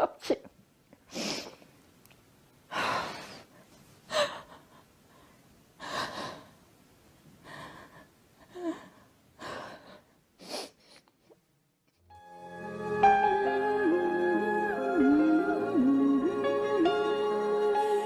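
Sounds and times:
woman sobbing: 4.1s - 4.9s.

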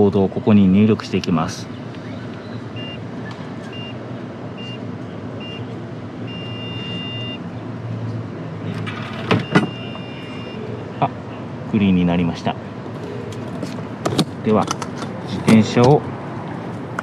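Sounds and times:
traffic noise: 0.0s - 17.0s
long beep: 2.7s - 3.0s, 5.4s - 5.6s, 6.3s - 7.4s, 9.4s - 10.6s
keypad beeping: 2.8s - 3.0s, 6.3s - 7.4s, 9.4s - 10.6s.

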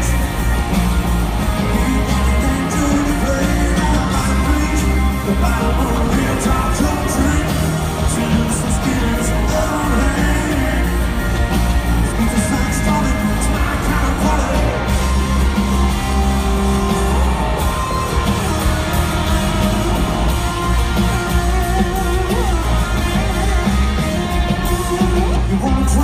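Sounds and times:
acoustic guitar: 0.0s - 26.0s
bass: 0.0s - 26.0s
drums: 0.0s - 26.0s
electric guitar: 0.0s - 26.0s
man singing lead vocal: 1.4s - 15.7s, 24.6s - 26.0s.

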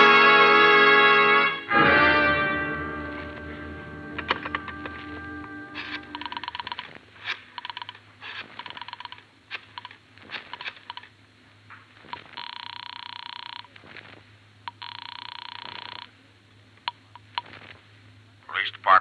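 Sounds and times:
telephone ringing: 3.1s - 11.1s, 12.1s - 13.8s, 14.7s - 16.1s
rotary dial clicking: 6.1s - 8.0s, 8.6s - 11.1s.

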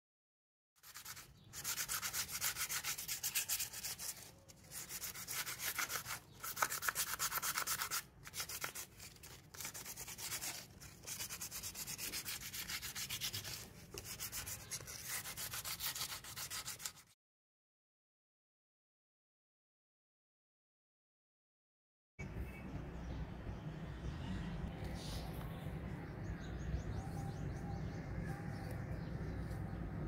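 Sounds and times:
sandpaper rubbing on pipe: 0.8s - 17.1s.

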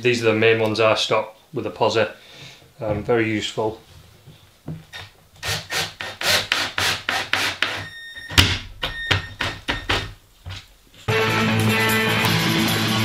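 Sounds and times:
drill bit rasping through wood: 5.4s - 7.9s.

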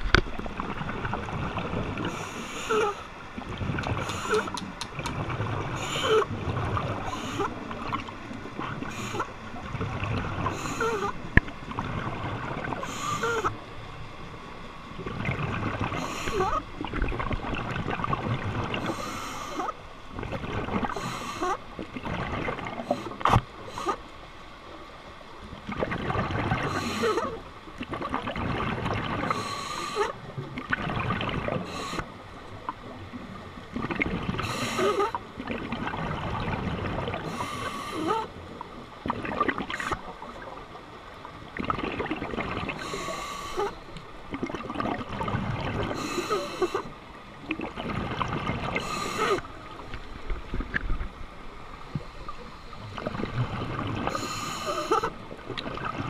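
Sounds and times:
exhaled bubbles burbling: 0.0s - 13.5s, 15.0s - 24.0s, 25.6s - 51.2s, 52.9s - 56.0s
regulator hiss on inhale: 2.0s - 3.1s, 4.0s - 4.6s, 12.8s - 13.5s, 18.8s - 19.7s, 20.9s - 21.6s, 29.3s - 30.2s, 31.6s - 32.2s, 34.4s - 35.2s, 37.3s - 38.2s, 42.8s - 44.0s, 45.9s - 47.0s, 48.8s - 49.5s, 54.1s - 55.1s.

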